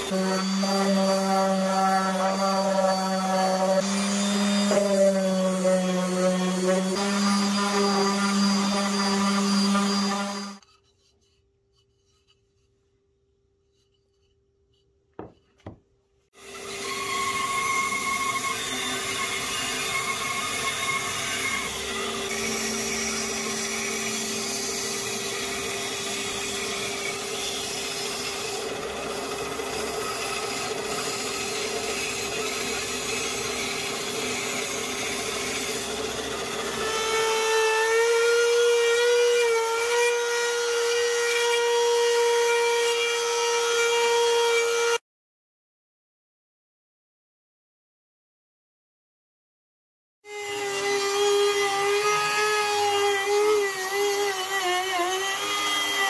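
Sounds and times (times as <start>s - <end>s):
bandsaw cutting wood: 0.0s - 10.6s, 16.4s - 45.0s, 50.3s - 56.0s
trim router whining: 0.0s - 10.6s, 16.4s - 44.9s, 50.3s - 56.0s.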